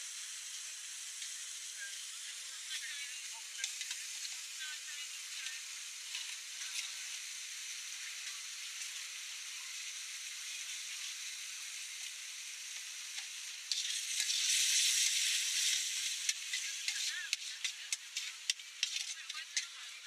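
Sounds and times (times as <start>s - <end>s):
beef sizzling in a wok: 0.0s - 20.0s
metal spatula clicking on wok: 13.2s - 19.8s.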